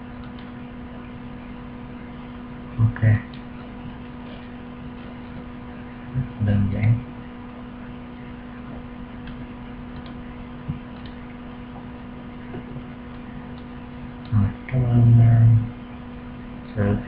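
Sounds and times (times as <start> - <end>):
electrical hum and hiss: 0.0 - 17.0
faint mouse clicks: 9.2 - 11.2.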